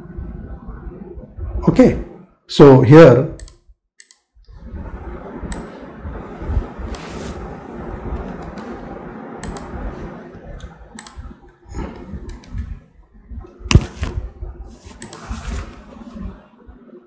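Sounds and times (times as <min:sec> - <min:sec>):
mouse clicks: 0:09.4 - 0:09.8, 0:11.0 - 0:11.2.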